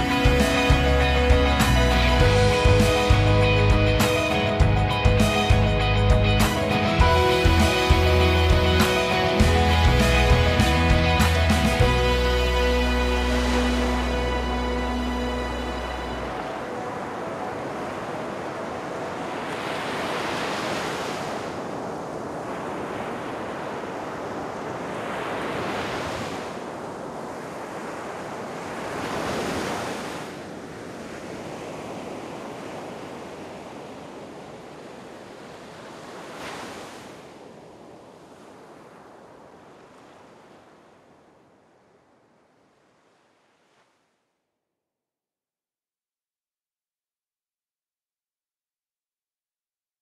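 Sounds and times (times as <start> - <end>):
waves crashing on shore: 0.0 - 4.6, 6.4 - 44.2.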